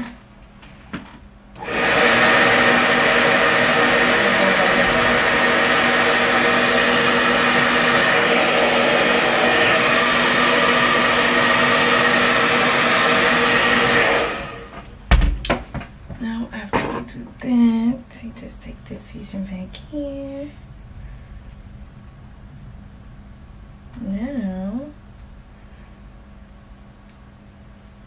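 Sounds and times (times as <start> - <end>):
hair dryer blowing: 1.6 - 14.9.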